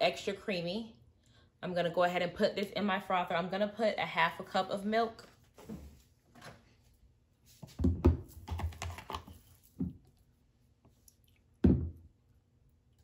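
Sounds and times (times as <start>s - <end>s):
jug and carton knocking on counter: 7.8s - 8.6s, 11.6s - 12.0s.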